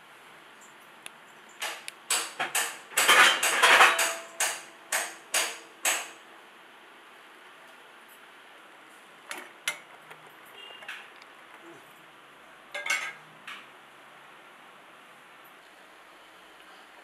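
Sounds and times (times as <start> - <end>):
metal kitchenware clinking: 2.4 - 4.6, 9.3 - 11.7, 12.7 - 13.2.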